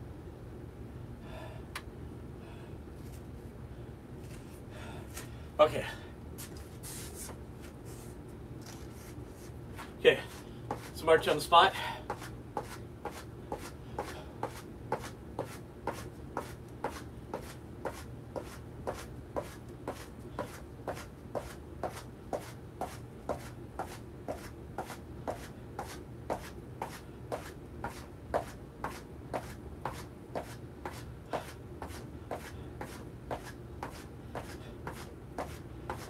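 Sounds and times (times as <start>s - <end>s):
feet marching on a floor: 9.8s - 11.0s, 12.1s - 36.0s.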